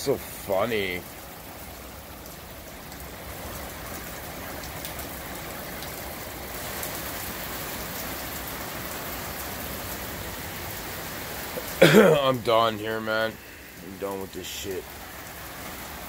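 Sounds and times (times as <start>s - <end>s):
heavy rain on cars: 0.0s - 16.0s.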